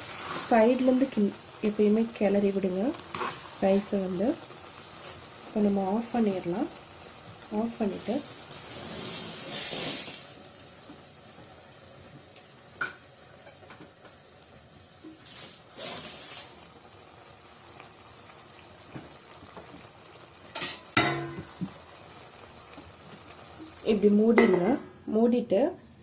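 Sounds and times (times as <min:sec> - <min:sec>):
metal cookware knocking and scraping: 0:20.6 - 0:21.6.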